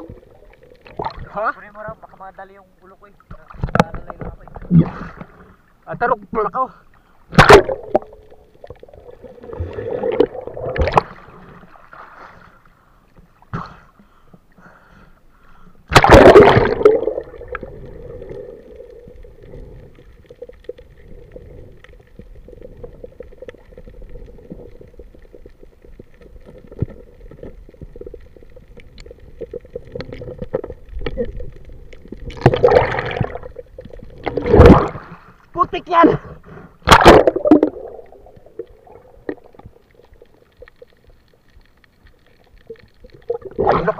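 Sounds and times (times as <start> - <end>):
splashing bubbles rush: 0.0 - 1.4, 7.3 - 12.1, 15.9 - 35.2, 36.8 - 40.8, 42.7 - 43.9
underwater water sloshing: 0.0 - 14.6, 15.2 - 43.9
faint steady hum: 0.0 - 43.9.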